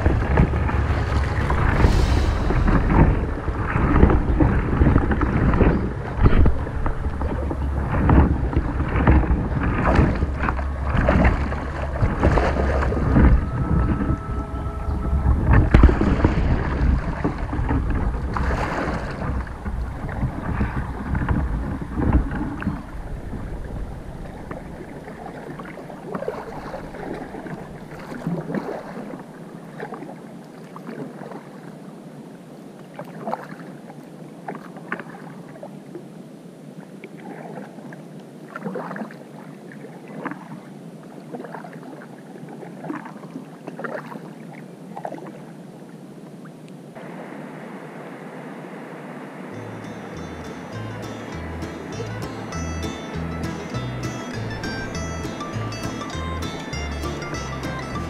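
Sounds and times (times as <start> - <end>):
wind rumble on microphone: 0.0 - 30.3
kayak paddle in water: 0.0 - 58.0.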